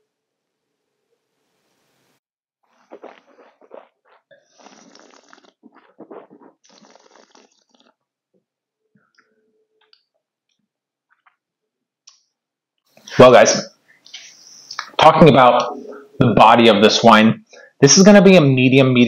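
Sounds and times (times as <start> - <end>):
mouth clicks and smacks: 2.7 - 8.1, 14.0 - 15.0
noisy slurping of wine: 2.7 - 8.1.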